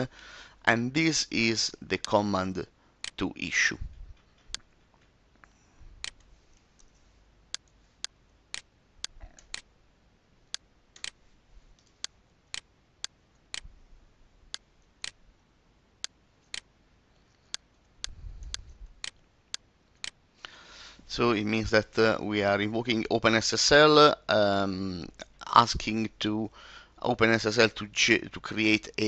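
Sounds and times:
room hiss: 0.0 - 4.3, 5.2 - 29.0.

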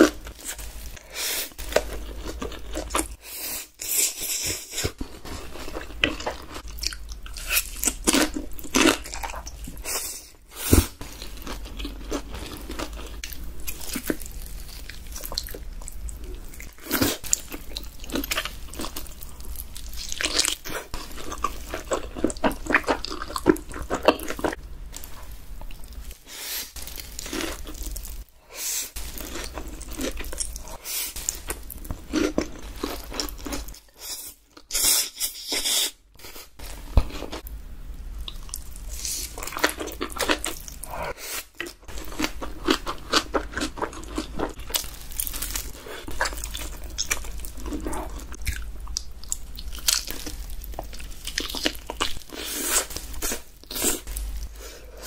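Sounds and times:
chewing: 10.7 - 28.2, 38.3 - 55.0.

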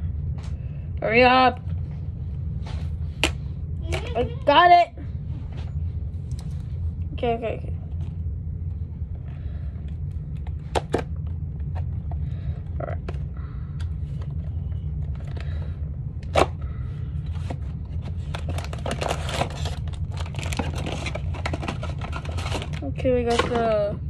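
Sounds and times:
low hum: 0.0 - 24.0
plastic packaging crinkling and tearing: 18.0 - 22.8.

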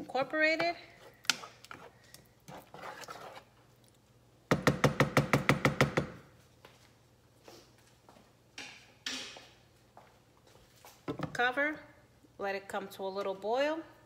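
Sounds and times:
spoon stirring sauce in a pan: 0.1 - 4.8.

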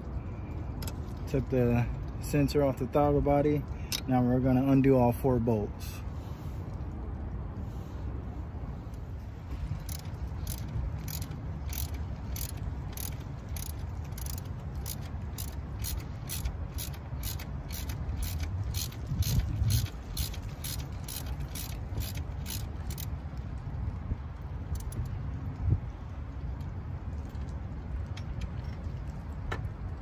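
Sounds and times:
ratchet wrench clicking: 9.6 - 23.1.

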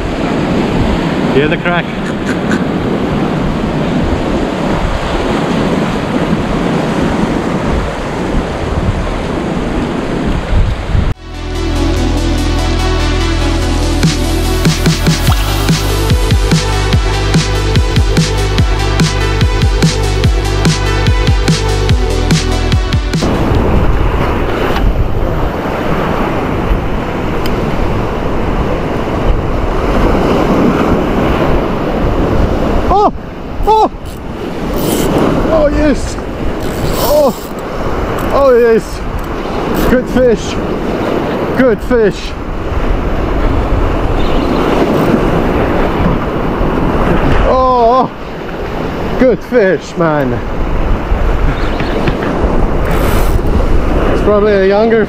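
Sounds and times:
sea surf breaking on rocks: 0.0 - 11.2, 23.2 - 55.0
wind buffeting microphone: 0.0 - 11.2, 23.2 - 55.0.

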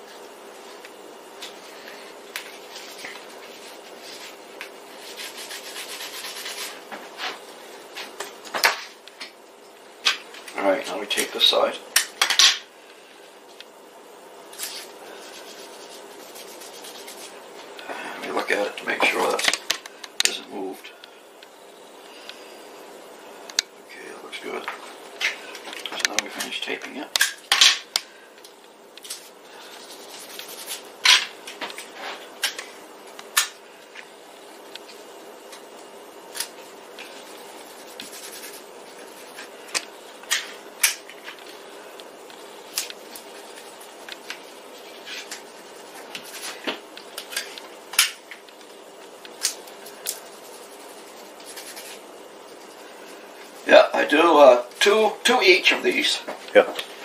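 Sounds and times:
faint steady hum: 0.0 - 57.0
soft rubbing of tape: 0.1 - 7.5, 14.5 - 17.5, 29.0 - 30.9, 35.6 - 39.6, 42.2 - 47.6, 48.6 - 53.7.

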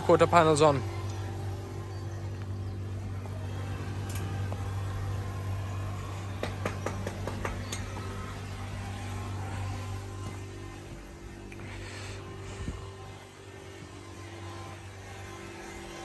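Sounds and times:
low machine hum: 0.0 - 16.0
sharp clicks and knocks: 6.4 - 8.1.

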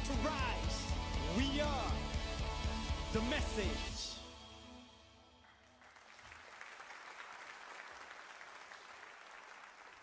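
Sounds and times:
music: 0.0 - 6.4
congregation applauding: 5.4 - 10.0.

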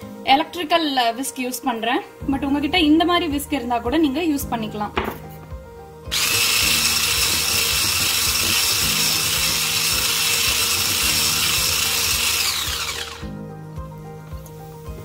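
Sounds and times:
electric whisk beating in bowl: 6.1 - 13.4.

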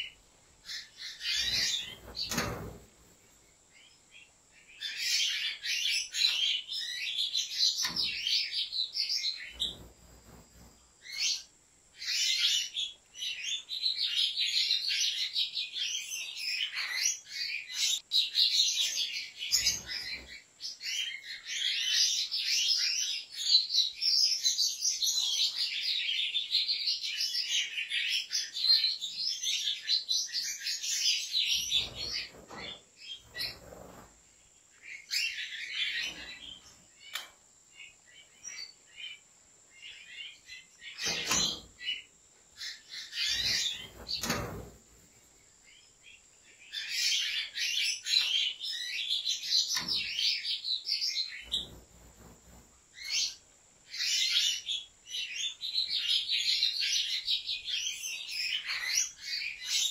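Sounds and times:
finches twittering song: 0.0 - 2.8, 34.8 - 44.6.

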